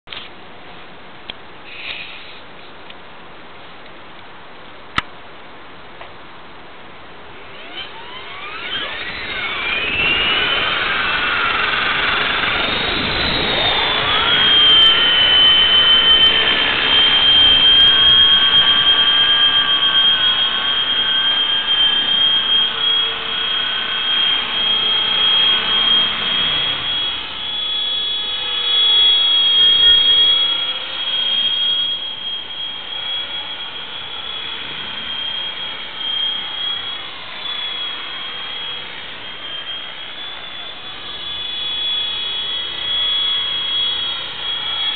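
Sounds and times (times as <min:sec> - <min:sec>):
rc helicopter motor whine: 0:07.2 - 0:44.9.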